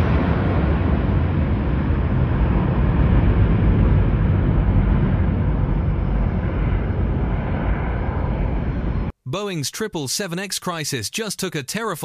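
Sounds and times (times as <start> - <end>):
jet engines rumbling: 0.0 - 9.2.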